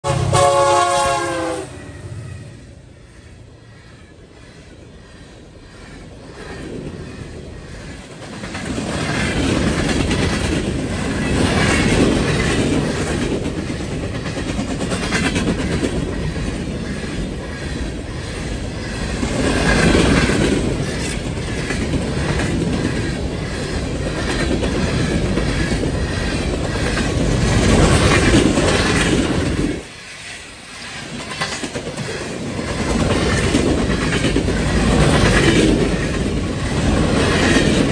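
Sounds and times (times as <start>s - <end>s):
freight train wheels clacking: 3.1s - 37.9s.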